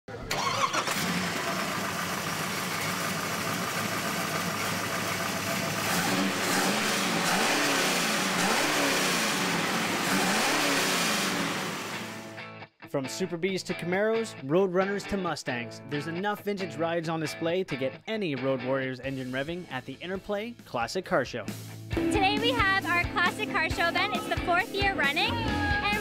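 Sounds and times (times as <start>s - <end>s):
car engine revving: 0.3s - 12.3s.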